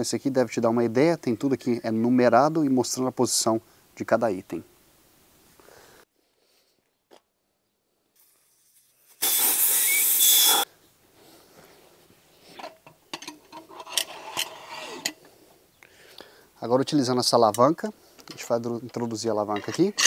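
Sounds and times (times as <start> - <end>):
air hissing from tyre valve: 8.2 - 10.7.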